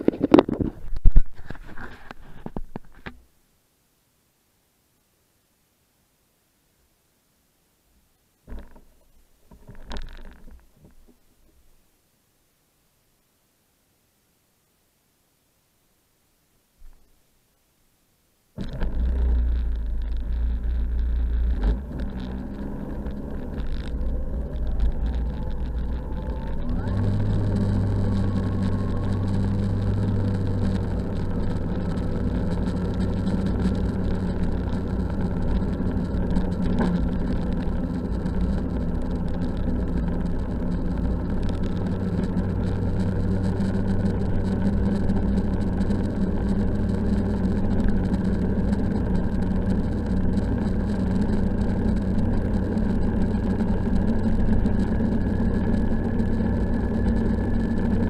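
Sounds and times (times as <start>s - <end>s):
snowmobile engine running: 18.6s - 58.0s.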